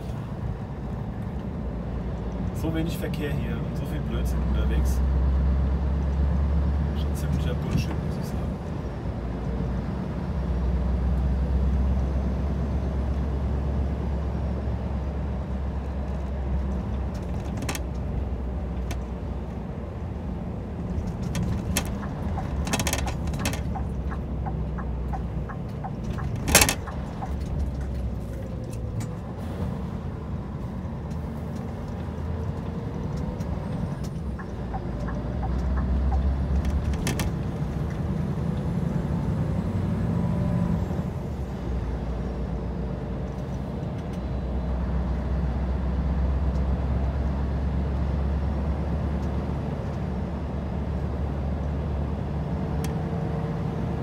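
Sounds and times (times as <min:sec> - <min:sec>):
truck engine droning: 0:00.0 - 0:54.0
sharp clicks and knocks: 0:16.6 - 0:18.1, 0:20.8 - 0:29.2, 0:31.1 - 0:38.0.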